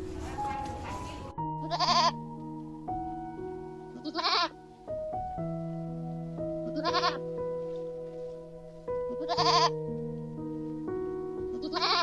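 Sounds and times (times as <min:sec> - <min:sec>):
calm background music: 0:00.0 - 0:12.0
goat bleating: 0:01.6 - 0:02.2, 0:04.0 - 0:04.6, 0:06.6 - 0:07.2, 0:09.2 - 0:09.8, 0:11.5 - 0:12.0.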